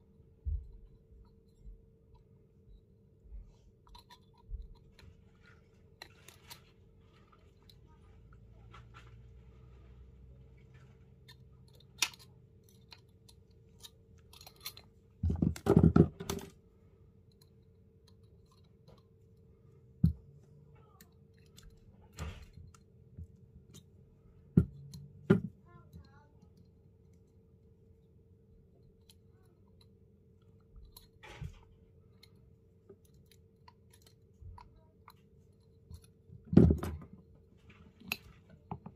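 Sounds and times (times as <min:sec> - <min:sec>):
faint steady hum: 0:00.0 - 0:38.9
wire twisting clicks and taps: 0:03.8 - 0:06.7, 0:11.1 - 0:16.6, 0:17.2 - 0:19.3, 0:20.0 - 0:27.4, 0:28.8 - 0:37.2
crunching and scraping: 0:04.0 - 0:16.6.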